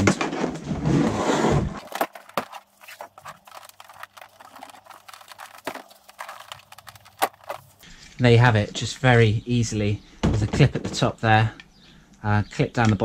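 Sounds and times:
plastic panel scraping: 0:00.0 - 0:07.8.

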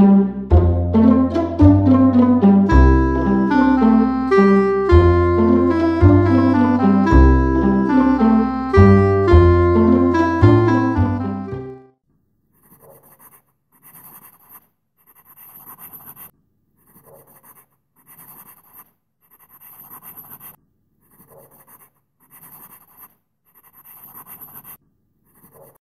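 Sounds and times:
marker scribbling: 0:12.5 - 0:25.8.

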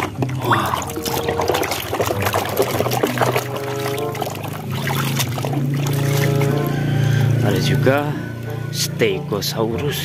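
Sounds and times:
water sloshing and splashing: 0:00.0 - 0:07.4
background music with bass: 0:00.0 - 0:10.0.

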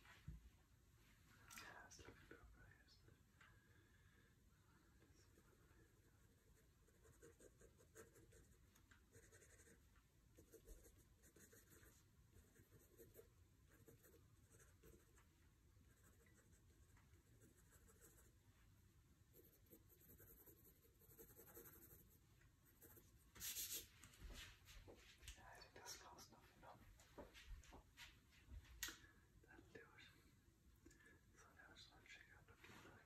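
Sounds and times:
pencil scratching on paper: 0:06.2 - 0:15.2, 0:15.9 - 0:16.8, 0:17.4 - 0:18.3, 0:19.3 - 0:23.9.

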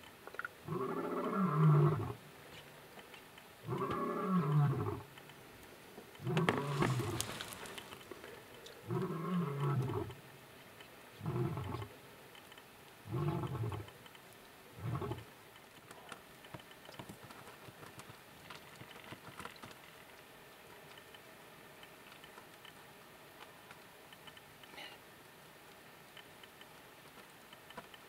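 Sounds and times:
faint scattered ticks: 0:00.0 - 0:28.0
lion roaring and grunting: 0:00.7 - 0:02.2, 0:03.7 - 0:05.1, 0:06.2 - 0:07.7, 0:08.8 - 0:10.2, 0:11.2 - 0:11.9, 0:13.1 - 0:13.9, 0:14.8 - 0:15.2.

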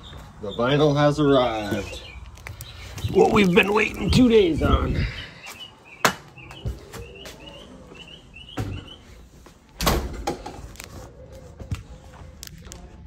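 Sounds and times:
bird chirping: 0:00.0 - 0:09.3
door opening and shutting: 0:09.8 - 0:10.7.

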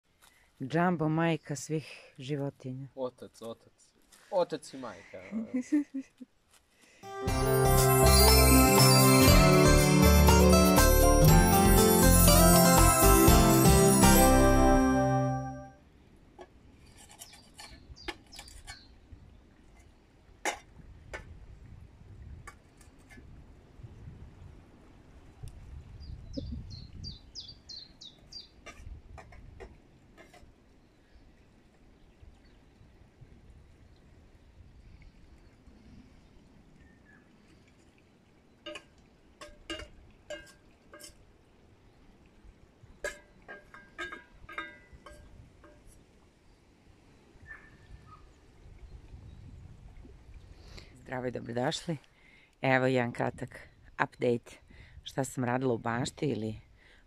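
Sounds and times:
low rumble of wind: 0:15.8 - 0:51.9.

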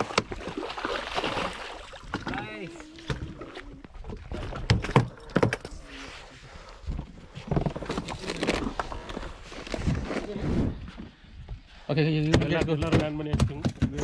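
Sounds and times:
thumps and knocks on boat deck: 0:12.2 - 0:14.0.

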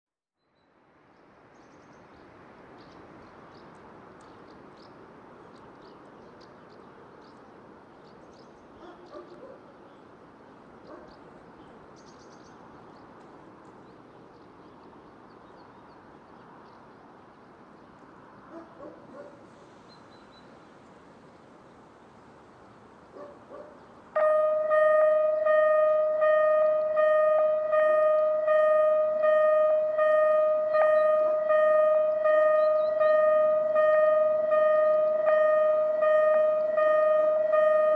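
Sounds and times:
birds chirping: 0:01.6 - 0:21.0, 0:21.6 - 0:37.9
level crossing warning bell: 0:24.2 - 0:37.9.

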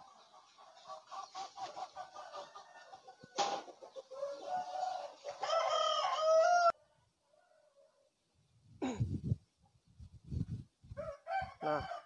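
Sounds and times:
chickens clucking: 0:00.0 - 0:06.0
rooster crowing: 0:04.2 - 0:06.8, 0:11.0 - 0:12.0.

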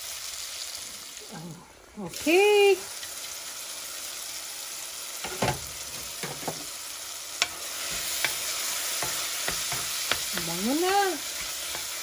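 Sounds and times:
vegetables sizzling in a pot: 0:00.0 - 0:12.0
wooden spatula stirring and knocking: 0:07.4 - 0:12.0.

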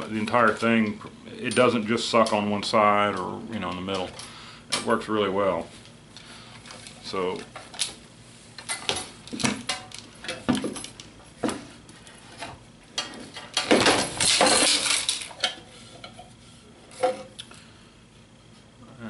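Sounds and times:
rattling and scraping: 0:08.6 - 0:17.3.

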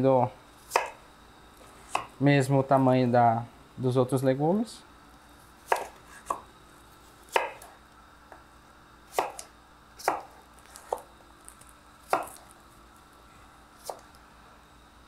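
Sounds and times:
knife chopping on wooden board: 0:00.7 - 0:01.0, 0:01.8 - 0:02.1, 0:05.6 - 0:06.5, 0:07.3 - 0:07.7, 0:09.1 - 0:11.1, 0:12.1 - 0:12.5, 0:13.8 - 0:14.1.

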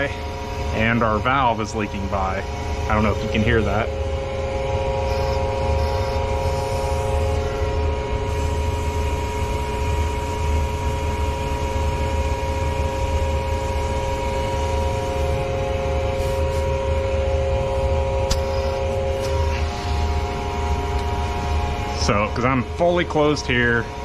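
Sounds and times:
air compressor humming: 0:00.0 - 0:24.0
air hissing through valve: 0:05.0 - 0:10.5, 0:13.6 - 0:20.4.

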